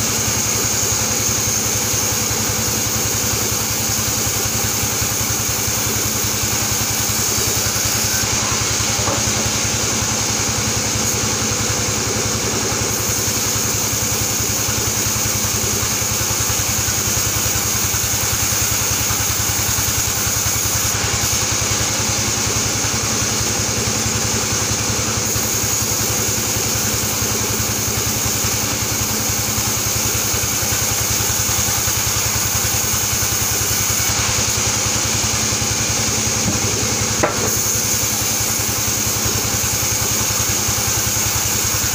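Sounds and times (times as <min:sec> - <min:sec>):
band saw sawing boards: 0:03.6 - 0:16.6, 0:24.7 - 0:41.9.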